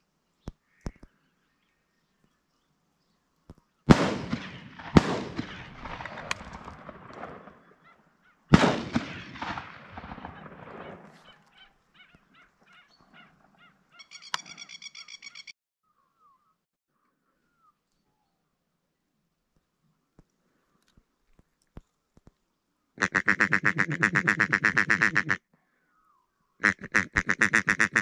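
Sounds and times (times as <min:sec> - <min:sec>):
shotgun shots with echo: 0:03.9 - 0:07.6, 0:08.5 - 0:11.2
waterfowl honking: 0:11.1 - 0:15.5, 0:23.0 - 0:25.4, 0:26.6 - 0:28.0.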